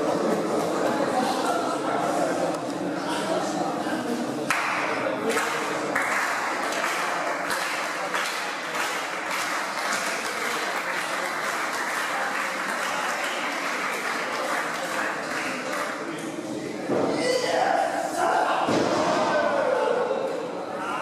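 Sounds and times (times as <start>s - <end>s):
crowd voices: 0.0s - 21.0s
crowd clapping: 4.5s - 16.2s.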